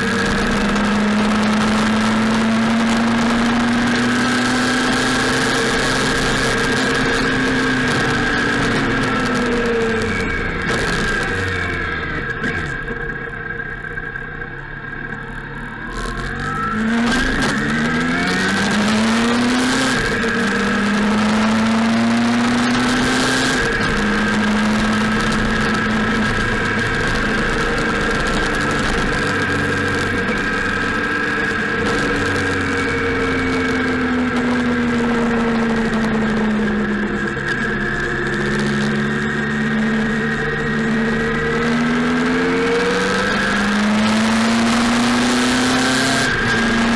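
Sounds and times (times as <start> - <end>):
motorcycle engine: 0.0 - 46.9.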